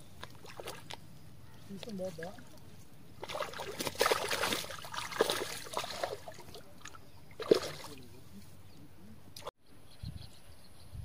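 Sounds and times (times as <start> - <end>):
pond water splashing: 0.0 - 1.2, 1.8 - 8.4.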